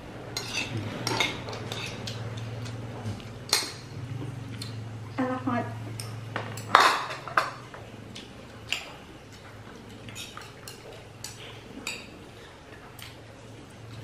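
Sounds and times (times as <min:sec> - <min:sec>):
low hum: 0:00.0 - 0:10.1.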